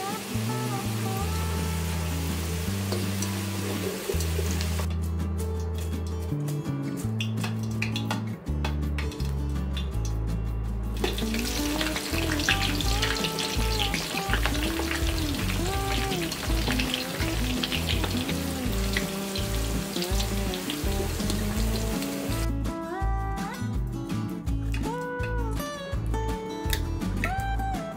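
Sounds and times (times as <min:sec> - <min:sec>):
vegetables sizzling in hot oil: 0:00.0 - 0:04.9, 0:11.0 - 0:22.5
background music: 0:00.0 - 0:27.9.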